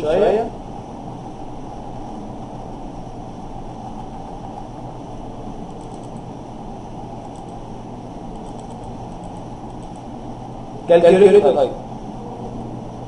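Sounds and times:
room and microphone hum and hiss: 0:00.0 - 0:13.0
faint mouse clicks: 0:07.2 - 0:07.6.

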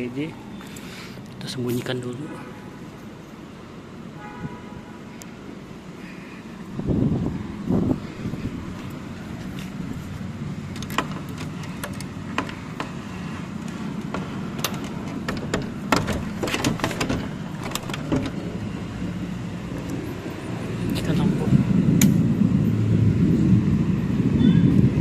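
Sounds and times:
steady low rumble: 0:05.4 - 0:25.0
door latch clicks and knocks: 0:10.7 - 0:13.0, 0:14.0 - 0:18.5.

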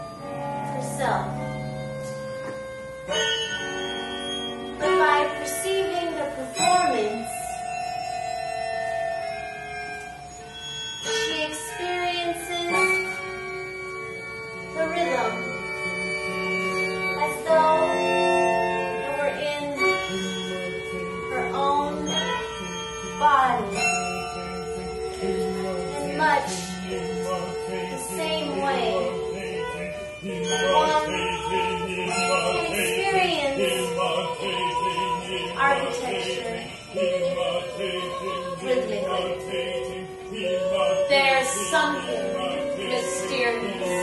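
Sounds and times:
music with long held notes: 0:00.0 - 0:44.0
voices chanting held notes: 0:25.2 - 0:44.0.

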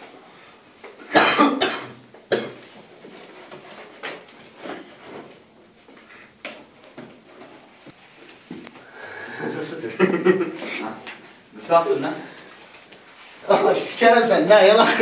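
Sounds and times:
man coughing: 0:01.1 - 0:02.6.

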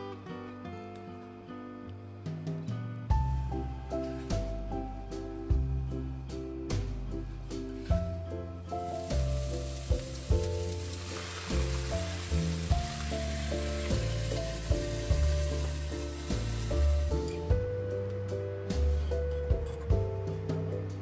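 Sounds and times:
background music low notes: 0:00.0 - 0:21.0
fish sizzling in a frying pan: 0:08.8 - 0:17.3.

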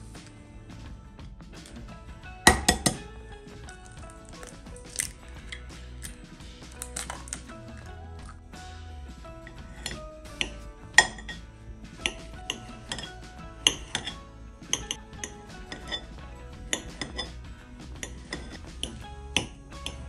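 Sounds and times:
soft background music: 0:00.0 - 0:20.0.

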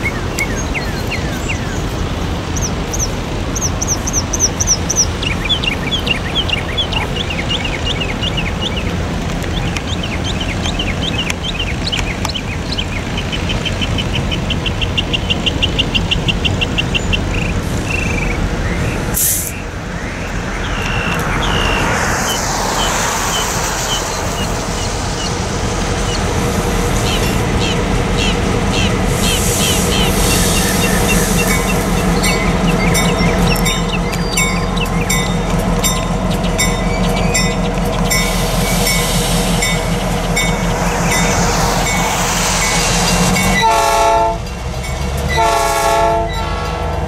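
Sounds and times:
songbirds chirping: 0:00.0 - 0:43.8
diesel freight train rumbling: 0:00.0 - 0:47.0
rushing hiss: 0:19.0 - 0:44.8.

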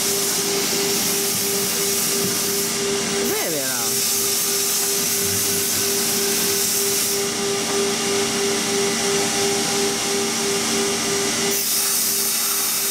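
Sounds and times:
machinery hiss: 0:00.0 - 0:07.3, 0:11.5 - 0:12.9
pulsing machine hum: 0:00.0 - 0:12.9.

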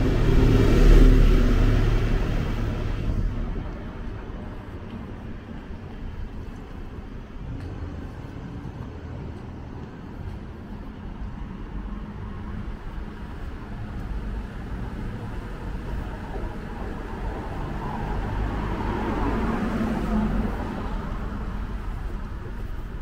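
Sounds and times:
low hum of traffic: 0:00.0 - 0:23.0.

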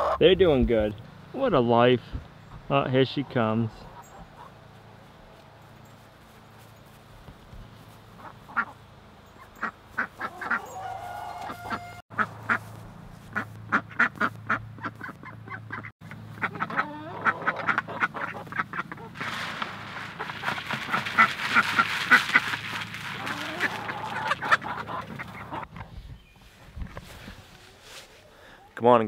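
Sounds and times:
ducks quacking: 0:08.1 - 0:08.8, 0:09.4 - 0:19.4, 0:20.0 - 0:25.9.

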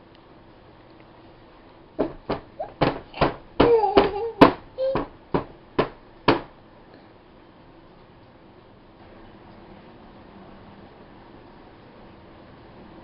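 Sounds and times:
hands slapping plastic tray: 0:02.0 - 0:06.5
baby high-pitched vocal sound: 0:03.6 - 0:05.1.

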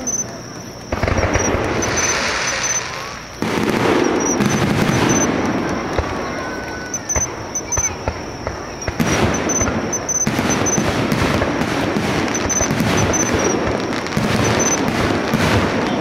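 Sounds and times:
dense crackling: 0:00.0 - 0:16.0
firework shells booming: 0:00.0 - 0:16.0.

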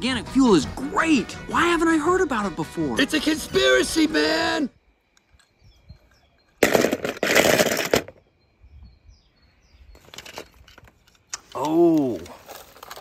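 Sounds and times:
plastic balls clattering: 0:06.6 - 0:08.2, 0:10.0 - 0:13.0.

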